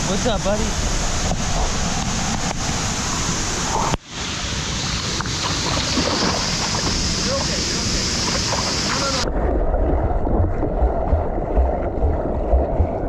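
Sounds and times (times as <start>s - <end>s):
river water flowing over rocks: 0.1s - 10.4s.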